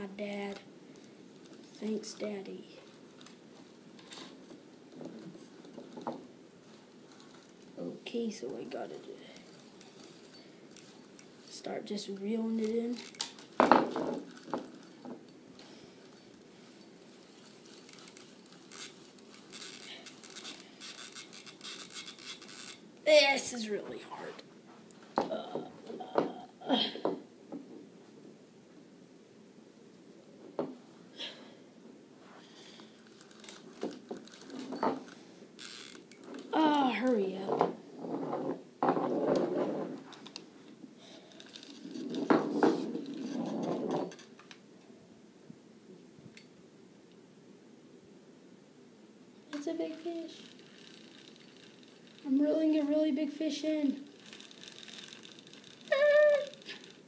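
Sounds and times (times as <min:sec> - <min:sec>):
handling rustle: 0:08.4 - 0:22.9, 0:32.3 - 0:36.5, 0:41.0 - 0:44.5, 0:49.9 - 0:52.3, 0:53.8 - 0:57.0
fishing reel clicking: 0:17.9 - 0:22.8, 0:35.6 - 0:36.2, 0:50.4 - 0:52.2, 0:54.2 - 0:57.0.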